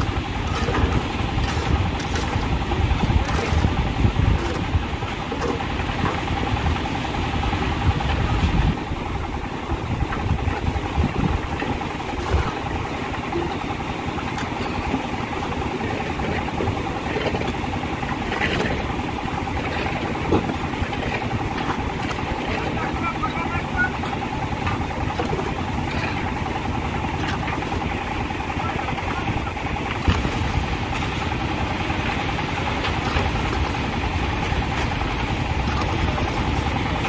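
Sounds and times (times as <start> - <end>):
concrete mixer engine running: 0.0 - 37.0.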